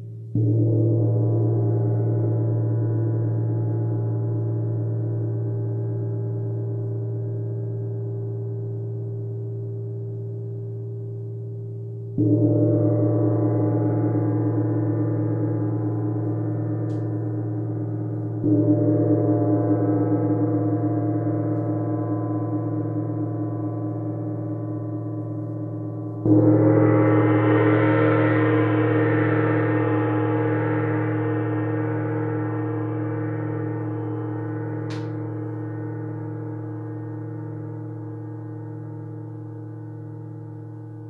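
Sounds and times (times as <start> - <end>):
gong ringing: 26.1 - 36.3.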